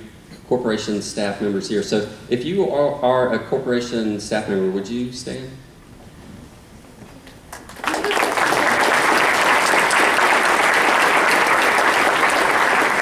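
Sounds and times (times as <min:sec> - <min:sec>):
audience applauding: 0:07.5 - 0:13.0.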